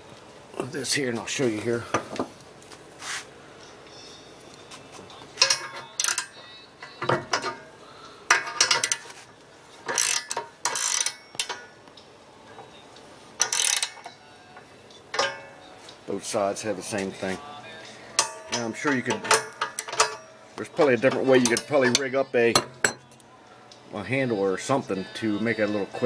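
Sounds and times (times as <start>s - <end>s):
metal rasping and ratchet clicking: 5.4s - 6.4s, 8.3s - 9.2s, 9.9s - 11.7s, 13.4s - 14.2s, 18.2s - 20.4s, 21.1s - 23.2s.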